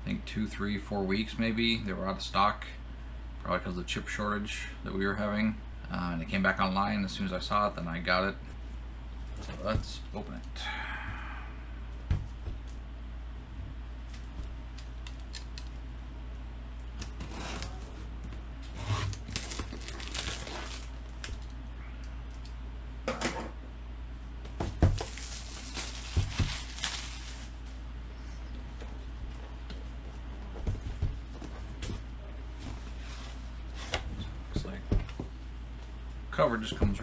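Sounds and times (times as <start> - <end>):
plastic shrink-wrap crinkling: 19.0 - 21.5, 25.0 - 27.6.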